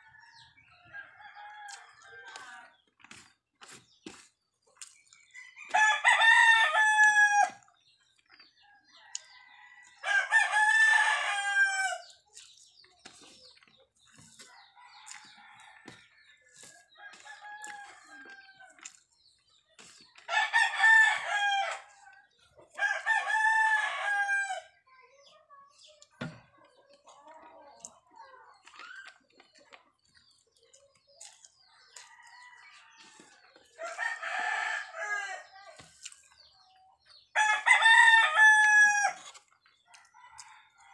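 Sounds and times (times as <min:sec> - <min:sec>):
rooster crowing: 0:05.6 - 0:07.6, 0:37.4 - 0:39.2.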